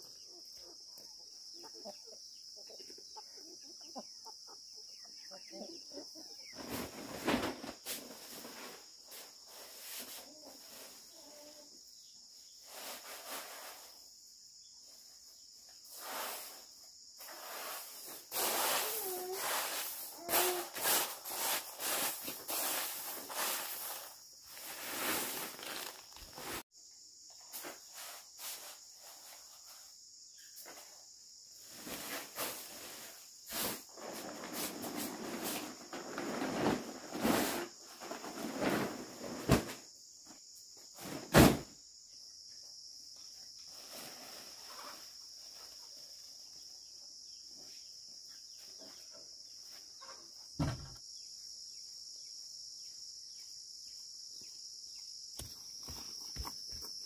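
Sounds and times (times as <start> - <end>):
plastic tarp rustling: 17.3 - 26.6, 31.6 - 39.8, 43.7 - 45.0
rice grains pouring: 24.6 - 26.6.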